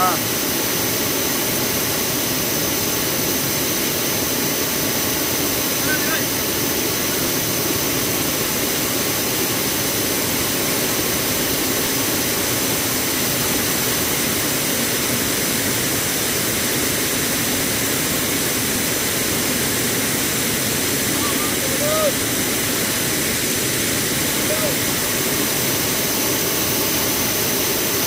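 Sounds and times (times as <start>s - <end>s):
waterfall rushing: 0.0s - 28.0s.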